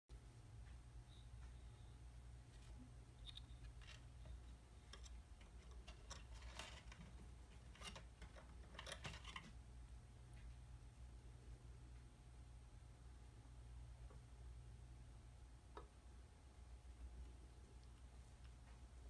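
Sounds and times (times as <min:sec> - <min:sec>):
low steady hum: 0:00.1 - 0:19.0
kitten claws scratching wood: 0:03.2 - 0:09.6.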